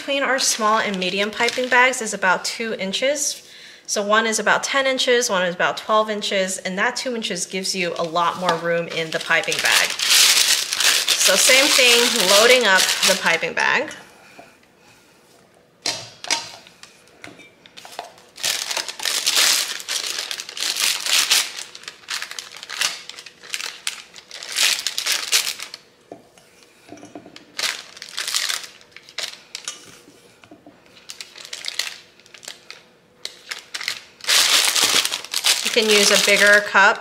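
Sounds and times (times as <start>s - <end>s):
plastic bag crinkling: 0.2s - 2.2s, 7.7s - 13.5s, 17.7s - 25.9s, 27.4s - 30.0s, 30.9s - 36.9s.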